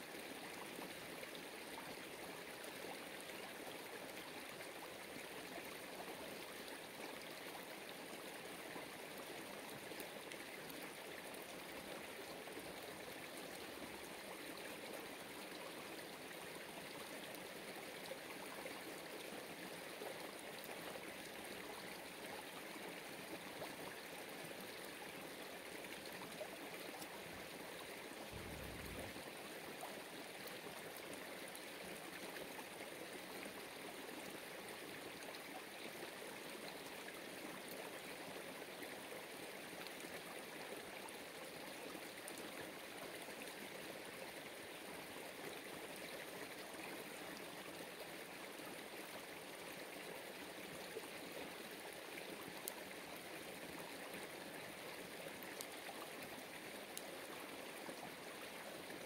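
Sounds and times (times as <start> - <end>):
running water rushing: 28.1 - 29.3.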